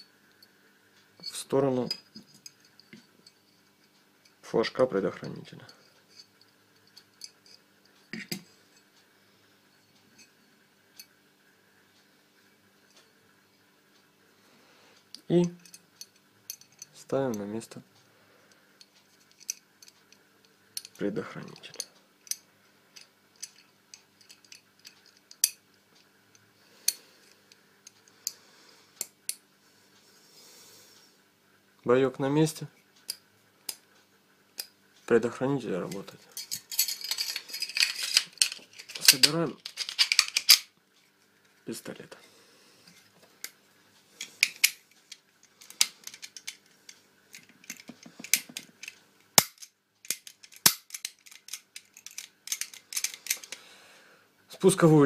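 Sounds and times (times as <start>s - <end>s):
air pistol parts clicking: 36.4s - 40.7s, 44.2s - 46.7s, 47.3s - 53.6s.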